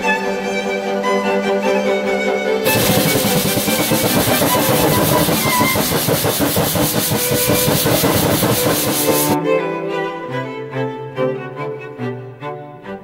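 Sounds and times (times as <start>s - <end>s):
fluttering rush of flame: 2.7s - 9.4s.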